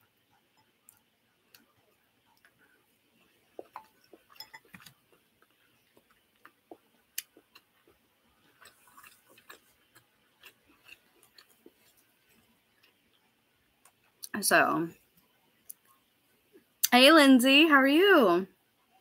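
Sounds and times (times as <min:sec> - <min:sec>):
person chewing food: 0:00.0 - 0:14.3.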